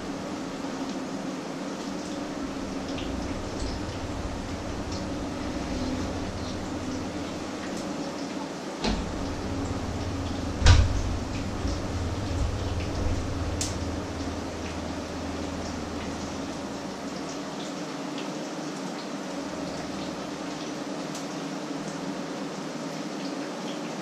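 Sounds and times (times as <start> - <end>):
low hum: 0.0 - 8.1, 8.8 - 17.6
door shutting thumps: 8.8 - 16.5.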